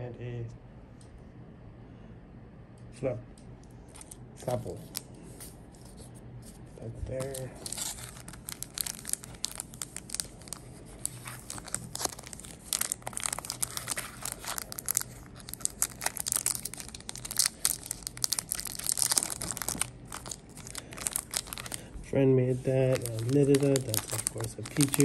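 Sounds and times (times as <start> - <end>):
foil wrapper crinkling and tearing: 3.9 - 6.0, 7.1 - 25.0.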